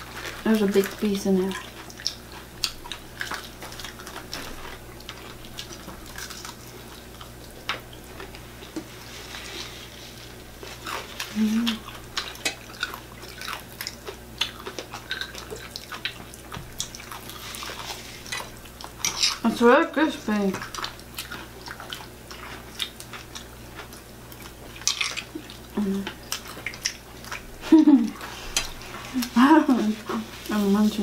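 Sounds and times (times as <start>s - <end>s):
chewing and crunching food: 0.0s - 31.0s
person humming: 11.3s - 11.8s, 25.8s - 26.1s.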